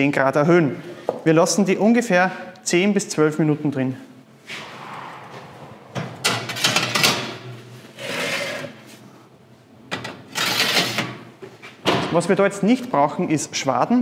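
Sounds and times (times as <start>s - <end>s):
metal trays scraping and clattering: 10.4s - 11.1s.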